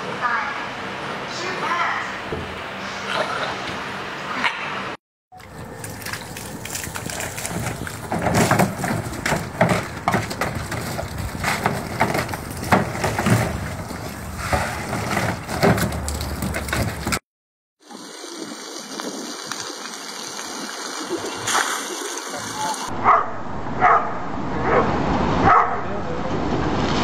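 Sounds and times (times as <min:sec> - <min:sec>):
hose water spraying and splashing: 0:05.4 - 0:17.2, 0:17.8 - 0:22.9.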